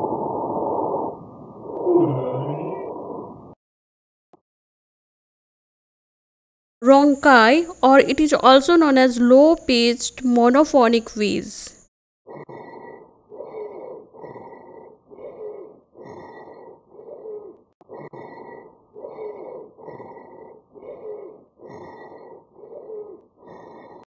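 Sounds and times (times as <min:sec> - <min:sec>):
low wheeze in lungs: 0:12.6 - 0:24.0.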